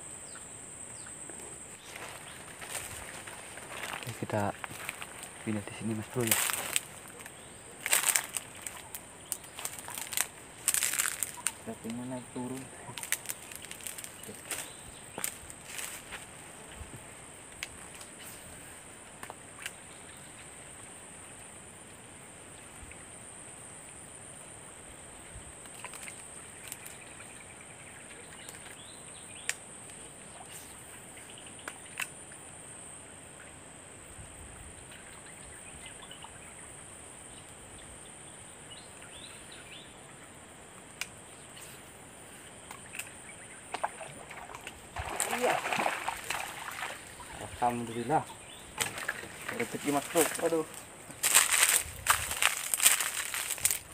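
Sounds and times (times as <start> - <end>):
faint bird chirps: 34.7 - 36.7.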